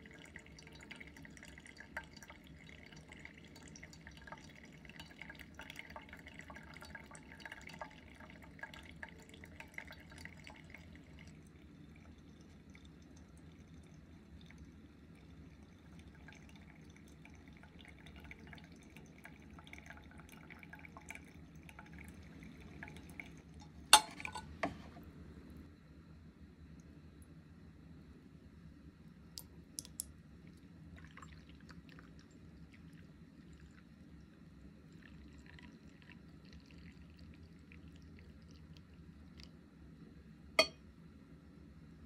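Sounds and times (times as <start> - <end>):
hot water pouring: 0.0 - 25.0, 29.8 - 39.6
coffee trickling and dripping: 0.0 - 25.7, 29.0 - 40.9.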